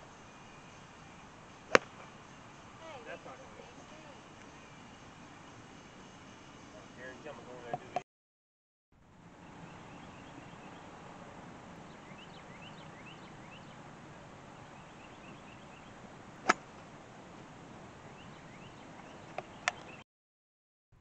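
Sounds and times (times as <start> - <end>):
steady outdoor hiss: 0.0 - 8.0, 9.0 - 20.0
golf club striking ball: 1.7 - 2.1, 16.4 - 16.7
small birds chirping: 9.4 - 11.0, 11.8 - 13.8, 14.6 - 16.0, 18.1 - 20.0.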